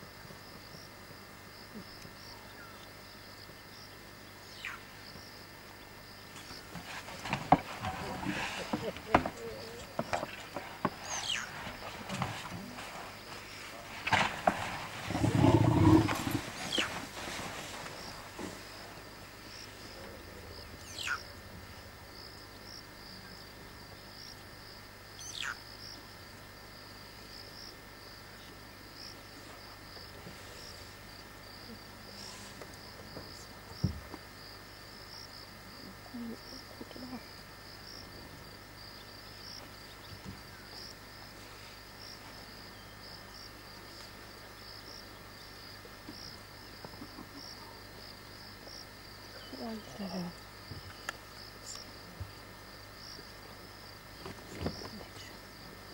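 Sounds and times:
insects chirring: 0.0 - 55.9
elephant low growl: 6.8 - 17.6.

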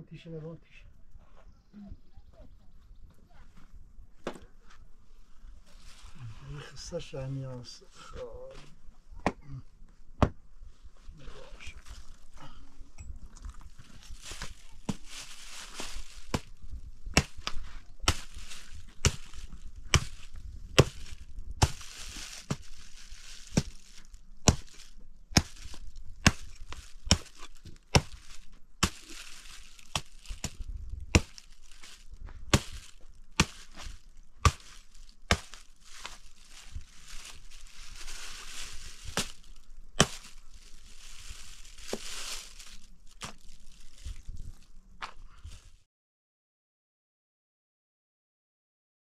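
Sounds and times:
rustling: 3.2 - 7.2, 10.6 - 45.8.

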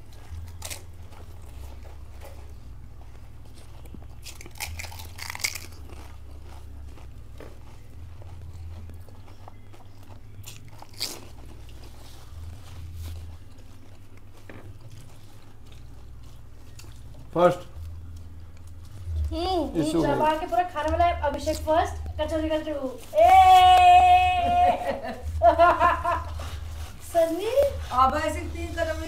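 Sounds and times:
low hum: 0.0 - 29.0
crisp food being crunched: 3.8 - 7.2, 9.3 - 11.9.

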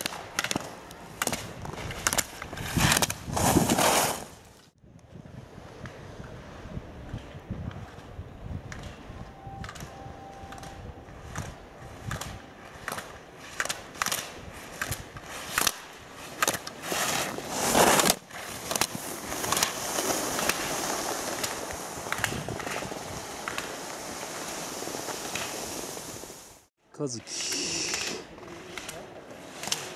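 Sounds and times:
skis scraping on hard snow: 1.2 - 4.8, 11.2 - 26.7
hiss of snow: 2.6 - 4.4, 16.2 - 26.7, 27.3 - 28.2.

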